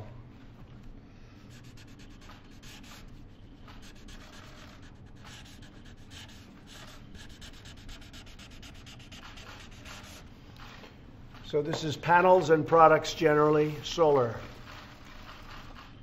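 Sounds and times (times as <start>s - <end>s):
pen scratching on paper: 1.5s - 10.3s, 14.6s - 16.0s.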